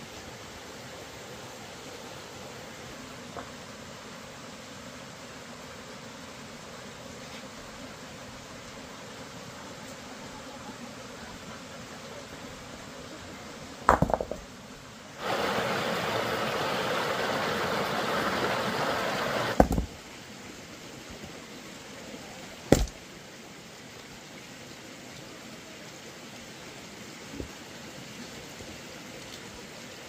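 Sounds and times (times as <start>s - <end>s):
steady hiss: 0.0s - 30.0s
knocks: 13.9s - 14.4s, 19.5s - 19.9s, 22.7s - 23.0s
water rushing: 15.2s - 30.0s.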